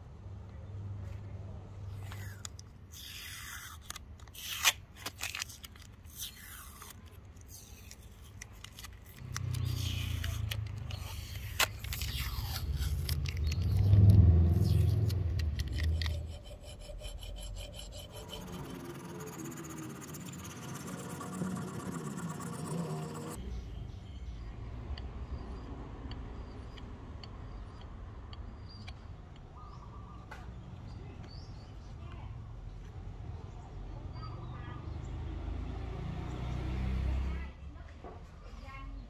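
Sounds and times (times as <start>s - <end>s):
hand tool scraping wood: 14.6s - 23.4s.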